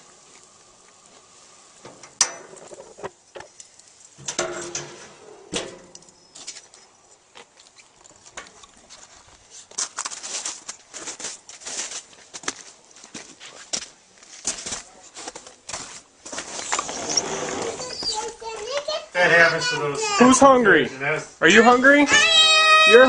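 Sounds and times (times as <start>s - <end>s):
footsteps crunching through snow: 8.8s - 18.6s.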